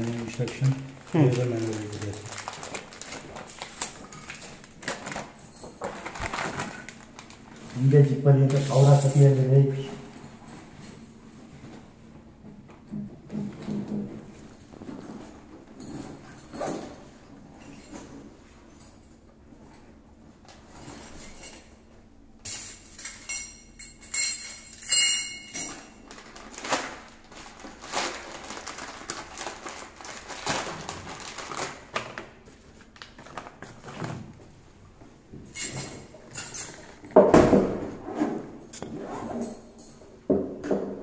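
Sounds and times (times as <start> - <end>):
plastic bag rustling: 0.0 - 10.8, 25.7 - 34.7
clatter of small items: 0.0 - 11.0, 22.4 - 34.4.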